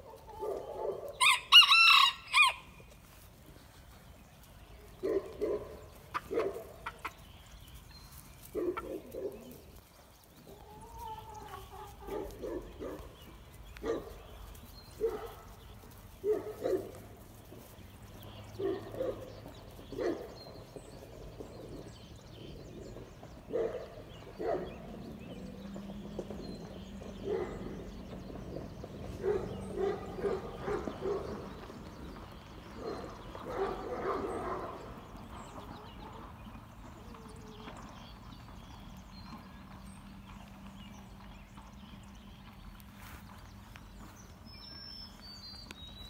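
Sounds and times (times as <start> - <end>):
puppies barking and yipping: 0.0 - 2.6, 4.6 - 22.0, 23.3 - 36.4.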